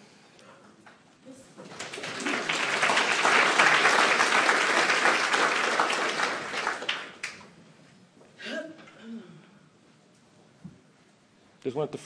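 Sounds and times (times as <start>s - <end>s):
audience applauding: 1.6s - 7.5s.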